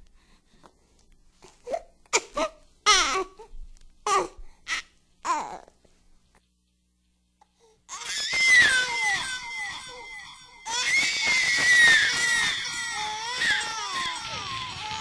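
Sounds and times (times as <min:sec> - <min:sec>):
high wavering crying voice: 0:07.9 - 0:15.0.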